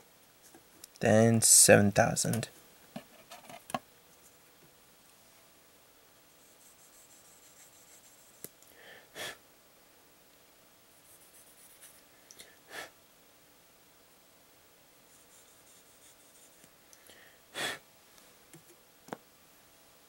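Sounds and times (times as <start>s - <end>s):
short breath: 17.0s - 17.8s.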